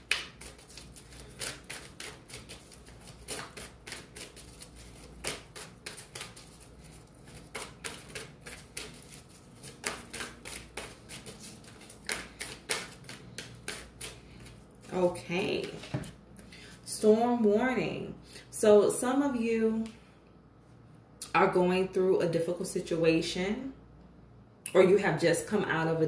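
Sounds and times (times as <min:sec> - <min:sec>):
cards being shuffled: 0:00.0 - 0:16.2.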